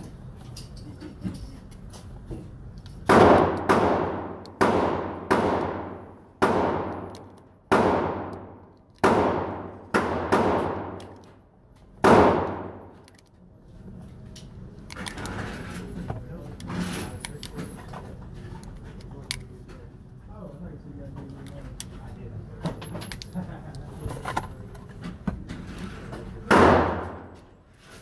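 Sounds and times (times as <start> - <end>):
pistol shots echoing indoors: 3.0 - 11.2, 12.0 - 13.0, 26.5 - 27.4.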